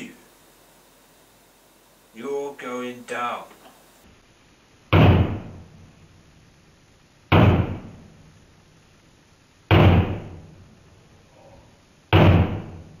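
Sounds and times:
hatchet striking television casing: 4.9 - 5.6, 7.3 - 7.9, 9.7 - 10.4, 12.1 - 12.8.

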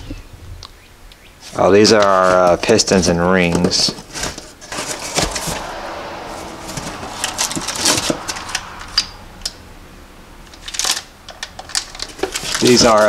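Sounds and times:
plastic and cardboard crinkling: 10.7 - 13.0.

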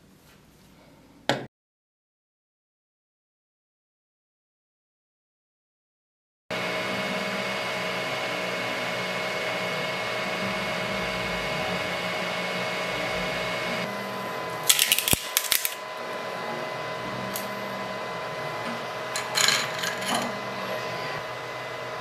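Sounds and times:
cooling fans humming: 6.5 - 22.0.

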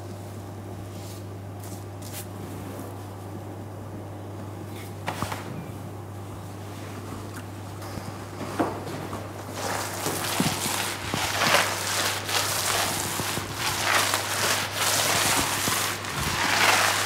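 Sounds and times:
steady low hum: 0.0 - 17.0
paintbrush strokes on wall: 9.6 - 17.0.

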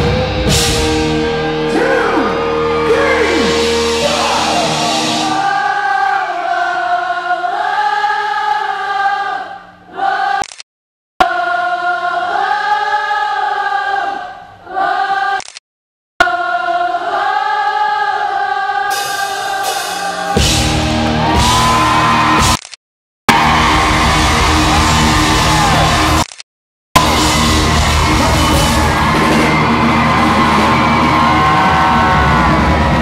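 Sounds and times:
sparse band backing: 0.0 - 6.5, 18.9 - 22.6, 23.3 - 26.3, 27.0 - 33.0
loud full rock band: 0.0 - 6.7, 18.9 - 22.6, 23.3 - 26.3, 27.0 - 33.0
crowd and singer singing: 1.7 - 8.6.

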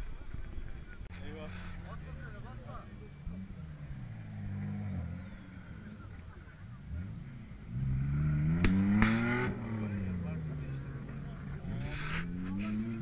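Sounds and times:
off-road engine revving: 1.1 - 13.0
sharp crack: 8.5 - 9.6.

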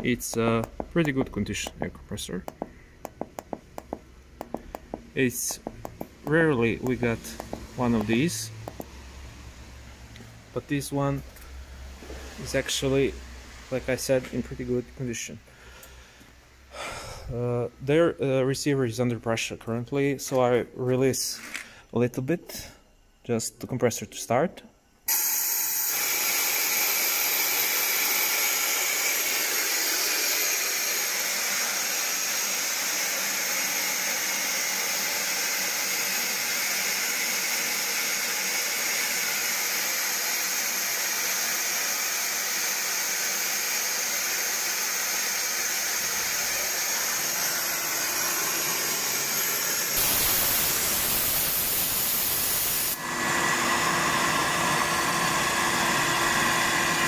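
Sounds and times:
screw compressor running: 0.0 - 9.0, 25.1 - 57.0
compressed air hissing: 42.7 - 53.0.

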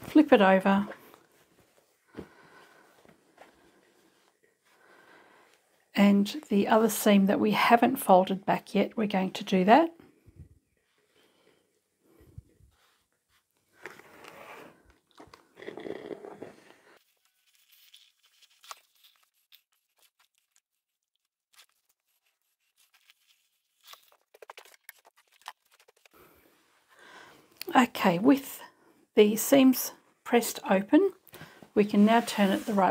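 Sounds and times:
fabric rustling and crinkling: 0.0 - 4.8, 31.8 - 32.9.

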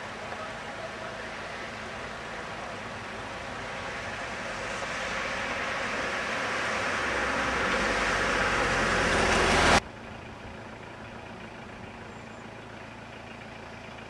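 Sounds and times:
tyres hissing on wet road: 0.0 - 9.8
faint outdoor background: 0.0 - 14.0.

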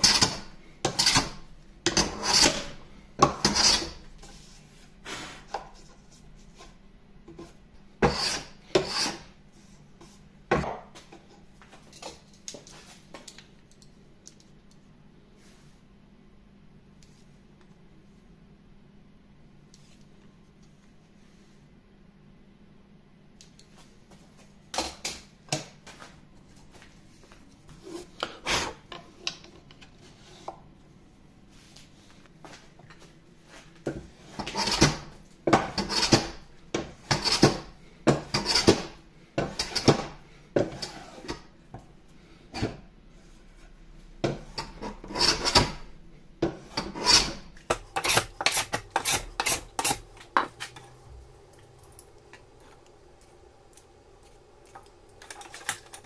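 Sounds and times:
hand plane scraping wood: 0.0 - 4.0, 8.0 - 9.3, 34.2 - 35.0, 44.7 - 45.8, 46.7 - 50.8.

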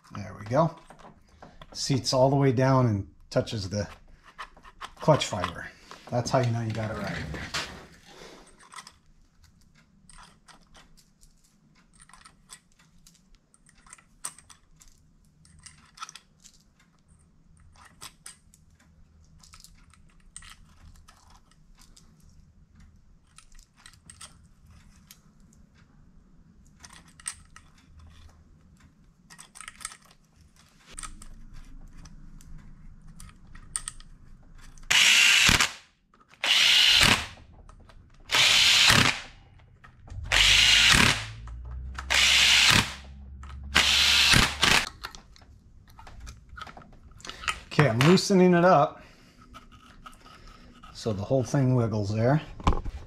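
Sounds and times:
small metal clicks and clinks: 8.4 - 25.6, 26.6 - 34.9
cordless drill spinning: 34.9 - 35.7, 36.4 - 37.5, 38.3 - 39.4, 40.1 - 44.9.

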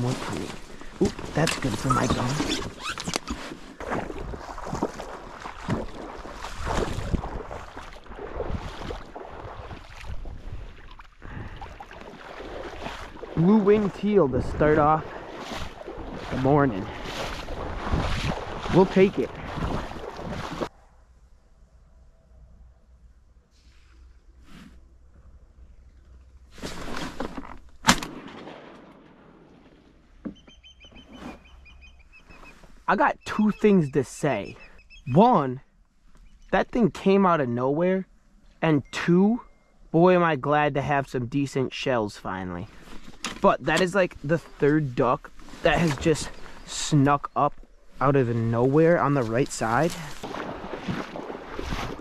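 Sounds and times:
water splashing: 0.0 - 20.7, 42.7 - 52.0
wind on microphone: 3.9 - 11.8, 14.3 - 20.7, 50.2 - 52.0
rustling: 26.1 - 27.8
shotgun shot ringing out: 27.8 - 29.4.

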